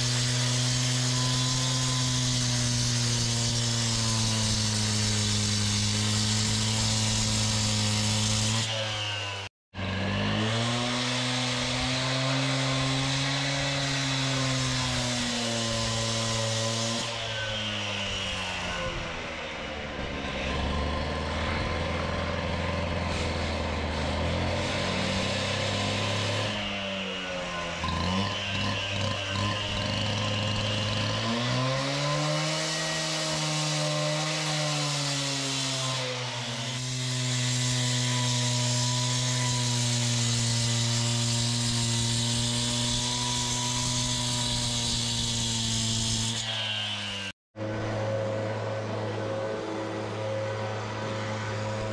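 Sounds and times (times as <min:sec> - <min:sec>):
engine running: 0:47.6 - 0:51.9.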